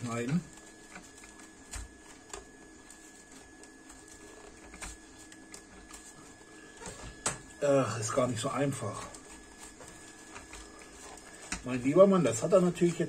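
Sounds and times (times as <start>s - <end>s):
blade scraping packaging: 8.1s - 13.0s.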